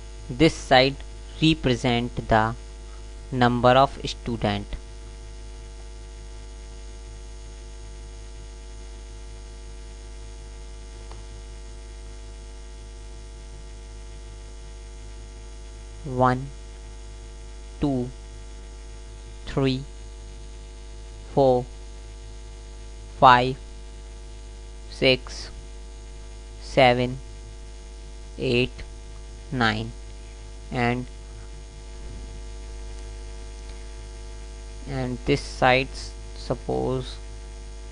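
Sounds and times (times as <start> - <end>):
electrical mains hum: 0.0 - 37.9
person speaking single words: 16.0 - 16.6, 17.8 - 18.2, 19.4 - 19.9, 21.3 - 21.7, 23.2 - 23.6, 24.9 - 25.6, 26.6 - 27.2, 28.4 - 28.9, 29.5 - 30.0, 30.7 - 31.2, 34.8 - 37.2.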